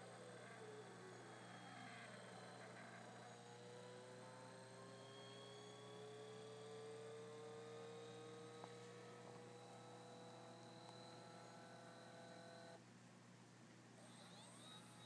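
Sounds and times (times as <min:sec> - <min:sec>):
stepper motor whine: 0:00.0 - 0:12.8, 0:14.0 - 0:15.0
low steady hum: 0:00.0 - 0:15.0.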